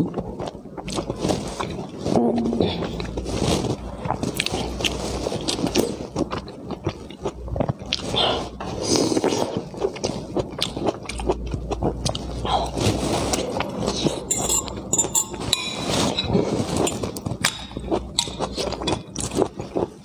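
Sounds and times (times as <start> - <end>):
person chewing crunchy food: 0.0 - 20.0
metal fork clinking on plate: 14.3 - 16.3.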